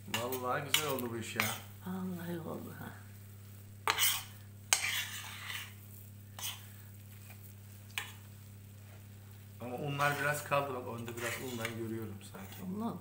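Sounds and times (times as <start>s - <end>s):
metal spoon scraping a pan: 0.1s - 1.7s, 3.8s - 8.3s, 9.8s - 12.8s.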